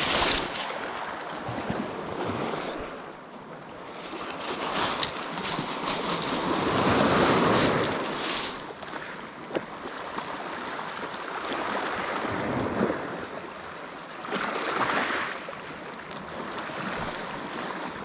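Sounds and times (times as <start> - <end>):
sea waves washing against rocks: 0.0 - 13.6, 14.2 - 18.0.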